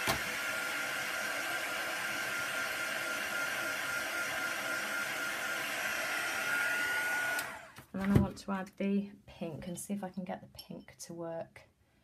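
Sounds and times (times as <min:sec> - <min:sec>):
heat gun fan whining: 0:00.0 - 0:07.8.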